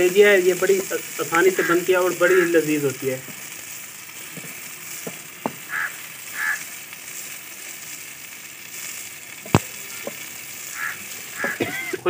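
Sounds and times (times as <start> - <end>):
liver sizzling in a pan: 0.0 - 12.0
wooden spatula stirring: 8.8 - 11.7.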